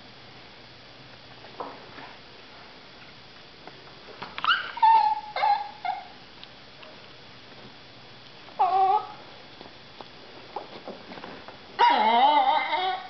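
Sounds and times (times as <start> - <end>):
small dog whining: 4.4 - 6.2, 8.6 - 9.2, 11.8 - 13.0.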